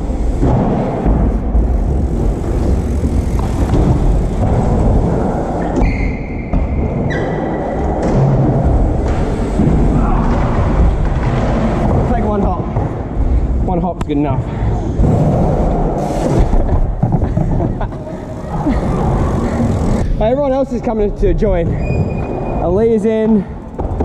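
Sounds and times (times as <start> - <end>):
bike tyres rumbling on concrete: 0.0 - 24.0
high tyre squeal: 5.6 - 6.5.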